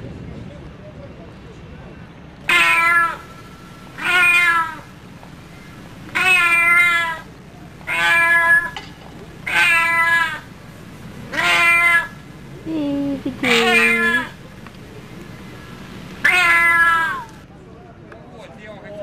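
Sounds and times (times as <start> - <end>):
cat meowing loudly: 2.5 - 4.9, 6.1 - 8.8, 9.4 - 10.5, 11.3 - 12.2, 13.4 - 14.4, 16.2 - 17.4.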